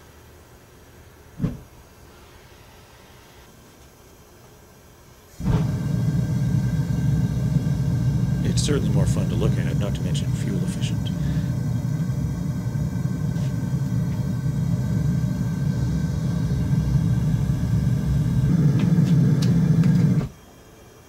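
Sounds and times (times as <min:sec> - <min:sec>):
furnace burner rumbling: 0:05.3 - 0:20.6.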